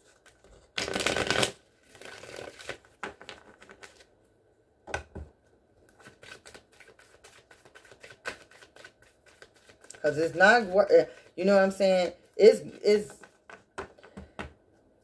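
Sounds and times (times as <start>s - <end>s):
cards shuffling: 0.0s - 4.1s, 5.9s - 11.8s
cards clicking and tapping: 13.0s - 14.6s.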